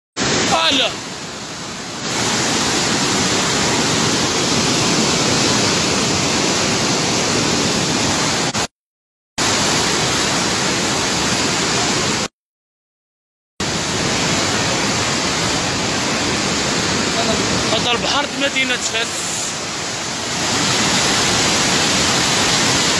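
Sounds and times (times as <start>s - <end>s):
floodwater rushing through channel: 0.2s - 8.7s, 9.4s - 12.3s, 13.6s - 22.9s.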